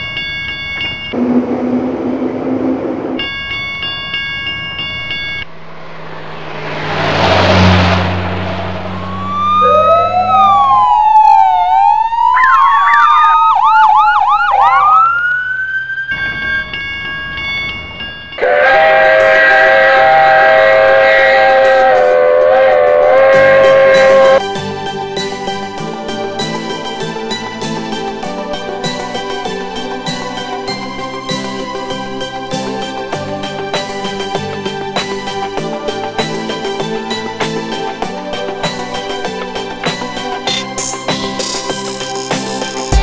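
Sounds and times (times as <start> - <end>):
train rumbling past: 1.2 - 3.5, 4.7 - 11.2, 18.4 - 24.7
electronic crossing warning tone: 4.4 - 6.0, 8.9 - 19.2, 20.7 - 24.4
police sirens wailing: 8.9 - 17.5, 18.4 - 24.4
steam whistle: 18.4 - 24.4.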